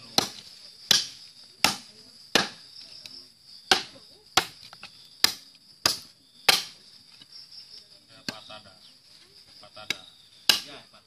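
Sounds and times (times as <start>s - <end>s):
knife chopping into wood: 0.0s - 2.6s, 3.7s - 6.8s, 9.9s - 10.8s.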